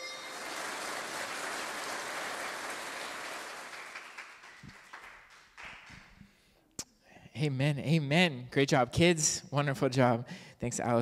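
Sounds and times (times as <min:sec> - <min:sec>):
audience applause: 0:00.0 - 0:06.1.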